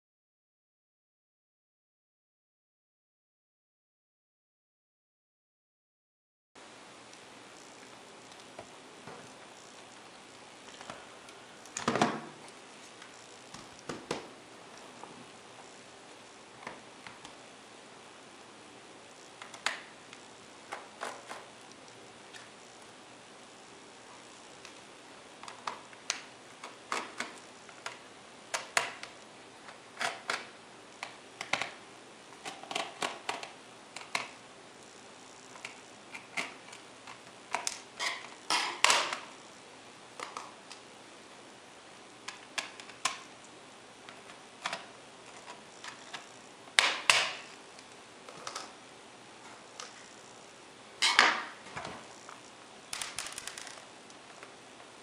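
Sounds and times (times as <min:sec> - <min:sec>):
plastic clicks and clatter: 0:25.4 - 0:31.8, 0:32.4 - 0:34.4, 0:52.9 - 0:53.8.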